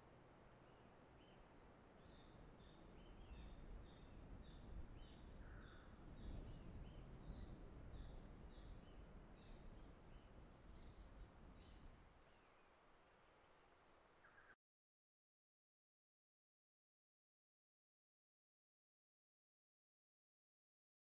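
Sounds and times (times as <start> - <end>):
low wind rumble on microphone: 2.0 - 12.2.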